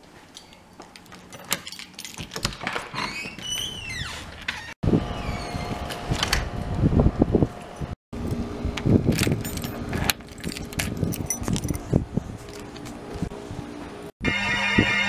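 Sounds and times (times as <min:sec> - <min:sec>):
keys jangling: 0:00.4 - 0:02.8, 0:09.1 - 0:13.0.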